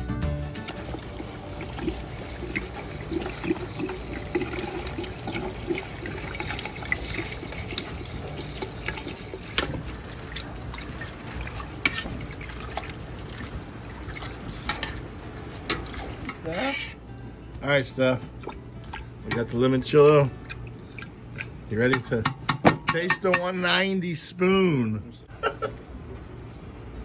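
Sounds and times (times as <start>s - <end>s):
liquid pouring and splashing: 0.6s - 16.4s.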